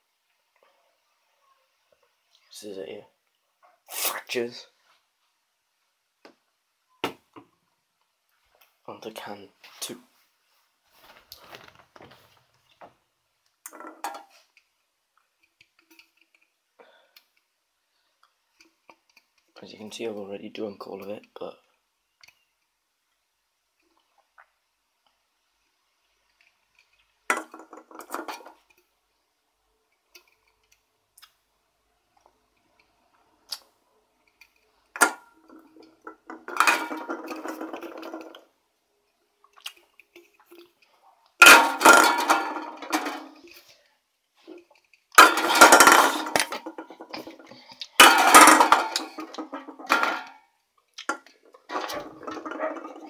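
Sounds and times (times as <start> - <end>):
drink can clattering and rattling: 13.6 - 14.3, 27.3 - 28.6, 35.0 - 38.5, 41.4 - 43.5, 45.2 - 50.4, 51.1 - 53.0.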